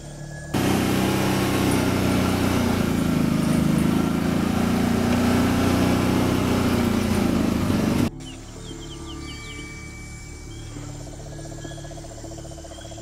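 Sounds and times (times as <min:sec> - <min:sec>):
small engine running: 0:00.5 - 0:08.1.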